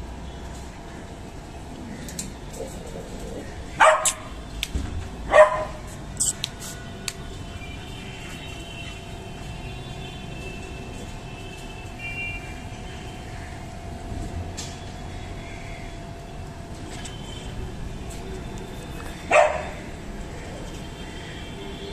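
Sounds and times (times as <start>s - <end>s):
dog barking: 3.8s - 4.3s, 5.3s - 5.9s, 19.2s - 19.9s.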